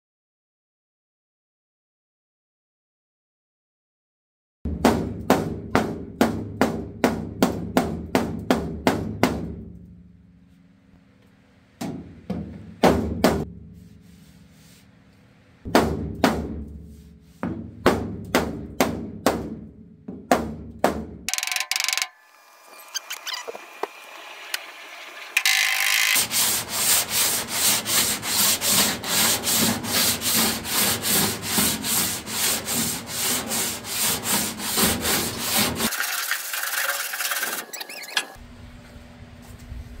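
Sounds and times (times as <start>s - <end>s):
sandpaper sanding metal panel: 25.5s - 38.4s.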